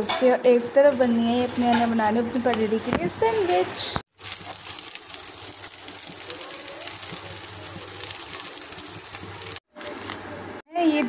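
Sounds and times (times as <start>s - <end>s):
exhaust fan running: 0.8s - 10.6s
gas stove hiss: 1.4s - 9.6s
faint crackling: 4.1s - 9.6s.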